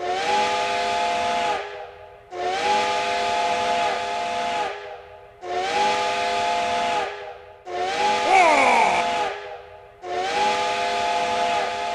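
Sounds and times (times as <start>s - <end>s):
steam train whistle blasts: 0.0s - 1.6s, 2.3s - 7.1s, 10.0s - 11.9s.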